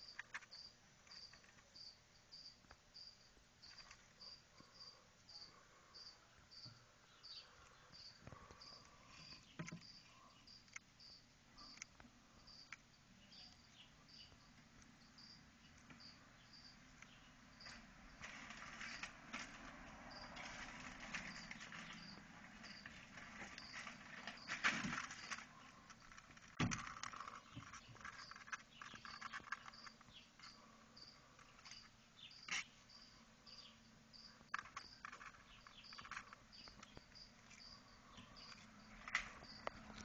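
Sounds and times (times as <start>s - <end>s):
cricket chirping: 0.0s - 40.0s
rustling handling noise: 17.0s - 30.6s, 34.4s - 40.0s.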